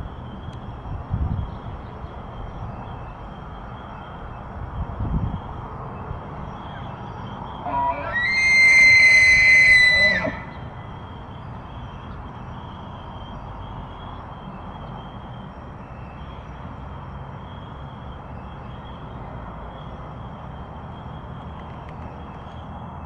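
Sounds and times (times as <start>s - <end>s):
elk bugling: 7.6s - 10.7s.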